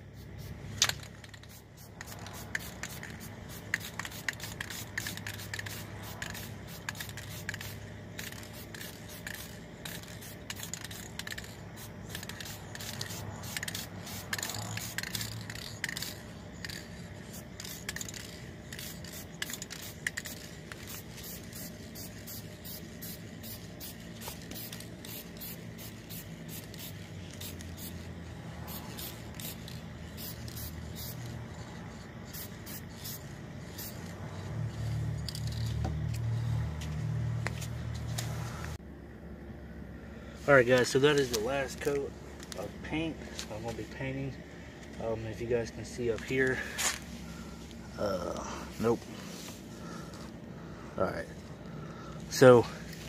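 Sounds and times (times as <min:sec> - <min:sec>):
aerosol spray can spraying: 0:00.0 - 0:38.3.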